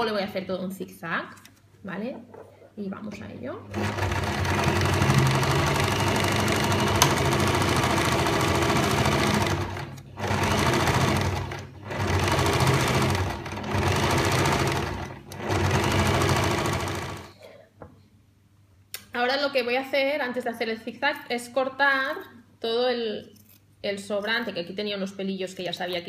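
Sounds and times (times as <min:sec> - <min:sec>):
sewing machine running: 0:03.7 - 0:17.3.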